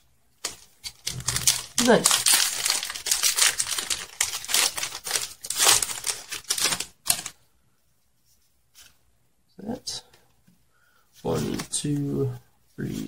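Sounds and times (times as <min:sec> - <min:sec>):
foil wrapper crinkling and tearing: 0:00.4 - 0:07.3.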